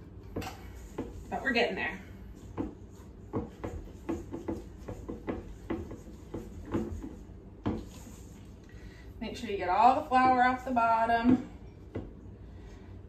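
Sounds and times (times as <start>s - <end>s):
spatula scraping dough in metal bowl: 0.7s - 8.4s.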